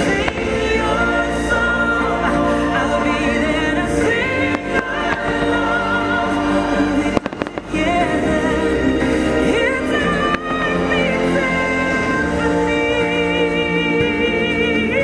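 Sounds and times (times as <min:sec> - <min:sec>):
fireworks bursting: 0:00.0 - 0:12.2
music with singing voices: 0:00.0 - 0:15.0.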